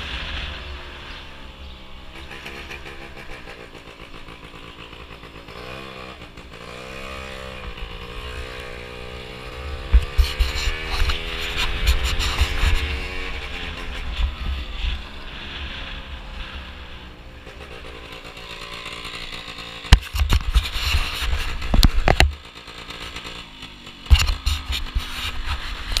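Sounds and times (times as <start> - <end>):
scooter engine slowing and idling: 0.0 - 26.0
knocks and rumble on microphone: 19.9 - 22.4.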